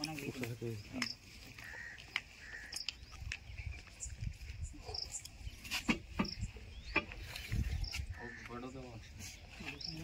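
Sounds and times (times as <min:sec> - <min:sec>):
sharp knocks and scrapes: 0:05.6 - 0:08.0.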